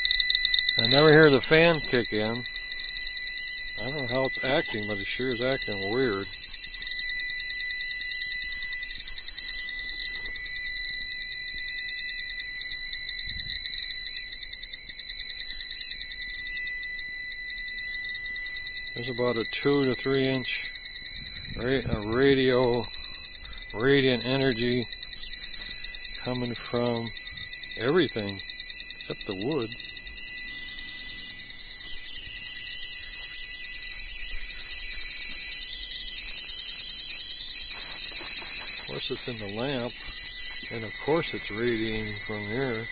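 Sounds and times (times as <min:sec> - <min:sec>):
high-pitched electronic whine: 0:00.0 - 0:42.9
voltage tester high-pitched buzzing: 0:00.0 - 0:42.9
hiss: 0:36.2 - 0:42.8.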